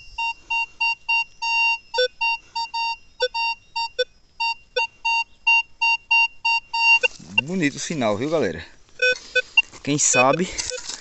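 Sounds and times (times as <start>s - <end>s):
low detector tones: 0.0s - 7.7s, 9.0s - 11.0s
metal detector beeping: 0.0s - 7.8s, 9.0s - 11.0s.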